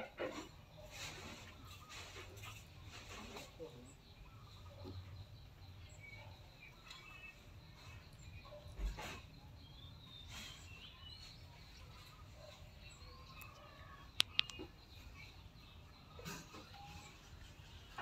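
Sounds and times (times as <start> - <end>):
small birds chirping: 0.0 - 18.0
sharp clicks: 13.4 - 14.7.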